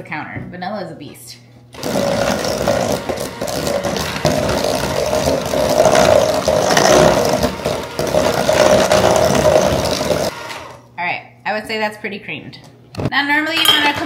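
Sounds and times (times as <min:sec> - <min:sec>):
electric hand mixer whirring: 0:01.8 - 0:10.9.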